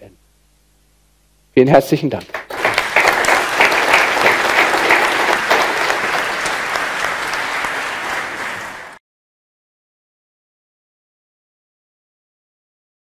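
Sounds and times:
audience applauding: 2.2 - 9.0.

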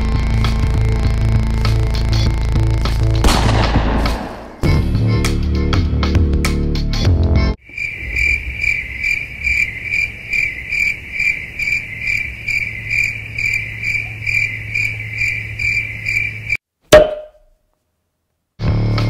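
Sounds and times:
cricket chirping: 0.1 - 2.6, 7.6 - 16.6.

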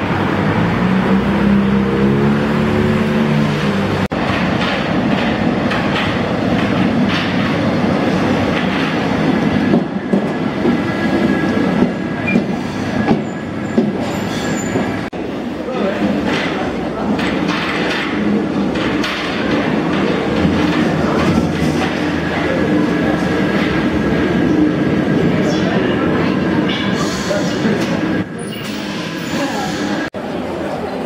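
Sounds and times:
train rushing rumble: 0.0 - 31.0
wheel clacks over rail joints: 4.1 - 7.6, 16.0 - 22.5.

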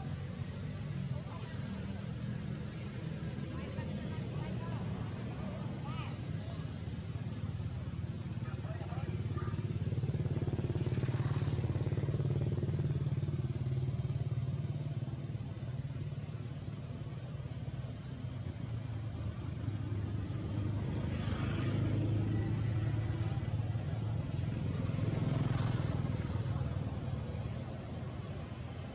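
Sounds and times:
motorcycle engine running: 6.7 - 28.9.

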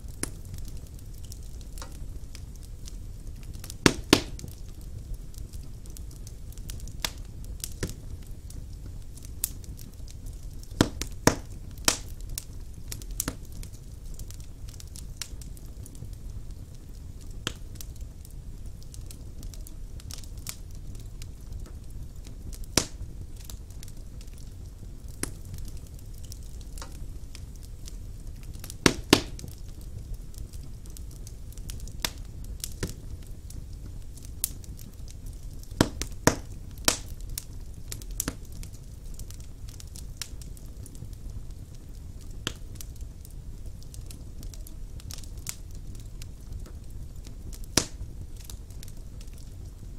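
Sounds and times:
fire crackling pops: 0.0 - 49.9
low rumble of flame: 0.0 - 49.9.

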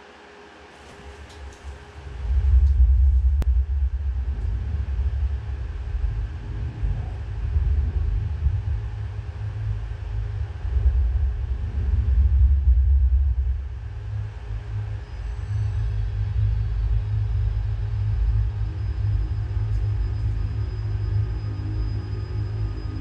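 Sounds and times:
deep bass rumble: 2.0 - 23.0.

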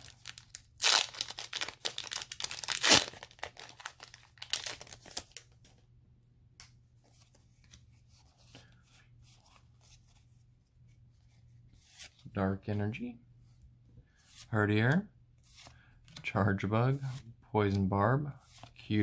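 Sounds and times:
foil wrapper tearing and crinkling: 0.0 - 5.4
cards rustling: 0.0 - 5.8.

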